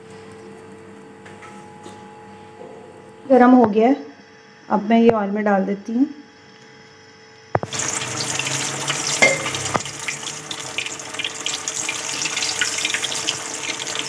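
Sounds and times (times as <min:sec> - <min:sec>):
food deep-frying in oil: 0:07.6 - 0:14.0.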